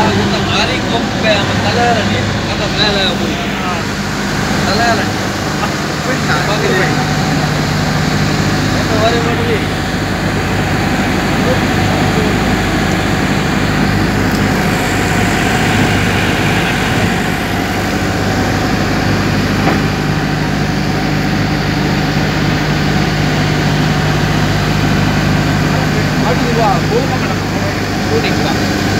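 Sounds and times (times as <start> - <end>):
boat engine humming: 0.0 - 28.9.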